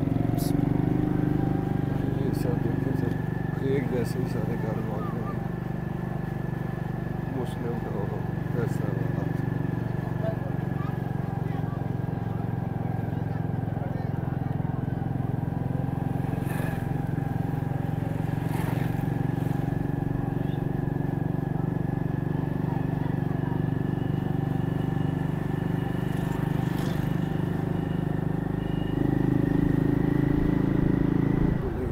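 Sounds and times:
small vehicle engine running: 0.0s - 31.9s.

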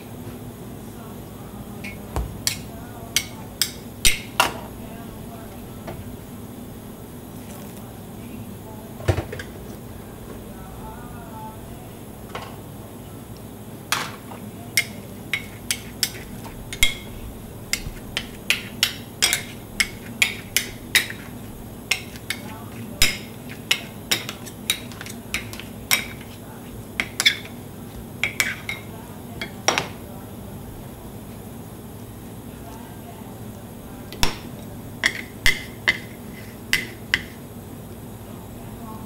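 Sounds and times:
metal spatulas clinking on stone: 14.8s - 17.1s, 17.7s - 21.3s, 21.9s - 26.3s.

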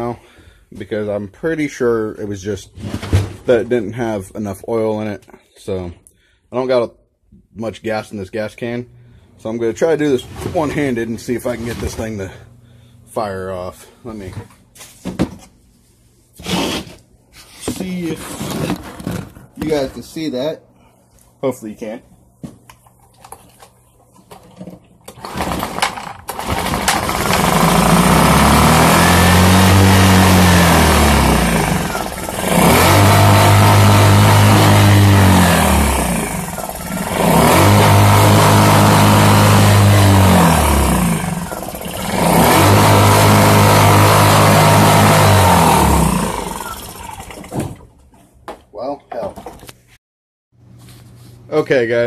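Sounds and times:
generator engine surging: 26.3s - 47.5s.

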